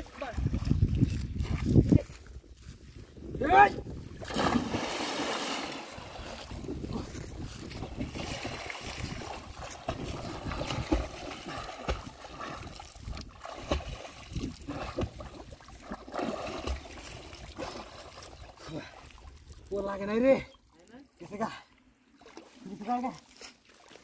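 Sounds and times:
water splashing around swimmer: 4.2s - 19.6s.

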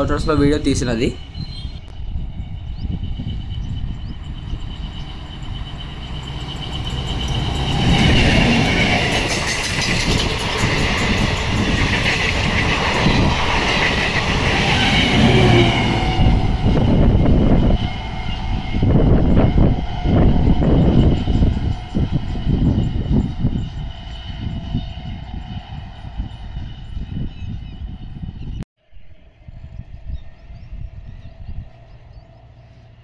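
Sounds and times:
train wheels clattering: 4.2s - 27.0s.

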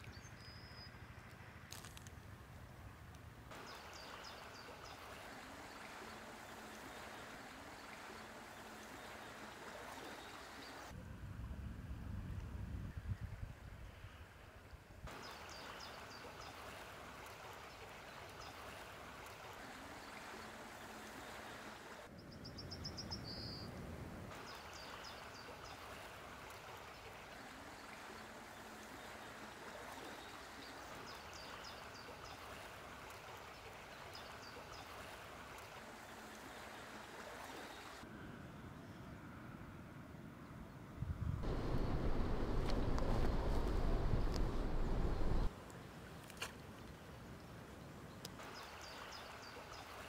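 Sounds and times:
small river flowing: 0.0s - 10.9s, 15.1s - 22.1s, 24.0s - 38.1s, 41.4s - 50.0s
low rumble: 41.4s - 45.5s.

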